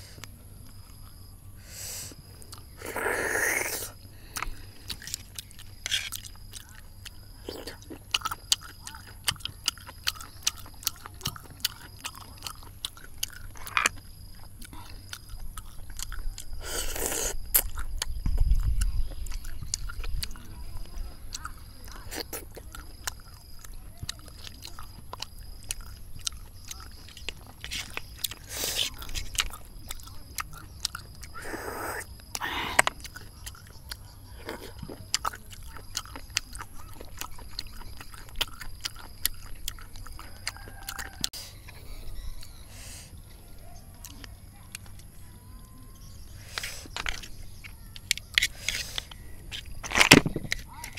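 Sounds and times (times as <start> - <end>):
slurping: 1.8 - 18.2, 19.1 - 33.8
chewing: 2.0 - 50.9
snail shells clicking: 3.6 - 31.4, 32.0 - 41.8, 44.0 - 50.9.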